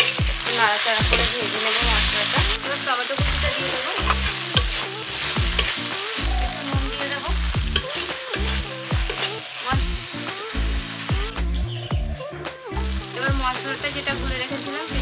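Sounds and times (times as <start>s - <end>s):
spatula scraping a pan: 0.0s - 9.8s
low shifting tones: 0.0s - 14.6s
food sizzling in hot oil: 0.0s - 15.0s.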